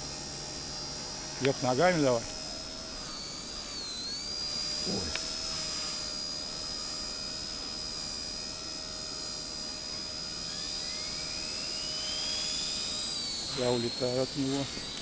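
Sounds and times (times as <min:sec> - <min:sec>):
model helicopters whining: 0:00.0 - 0:15.0
second whine rising in pitch: 0:01.6 - 0:08.2.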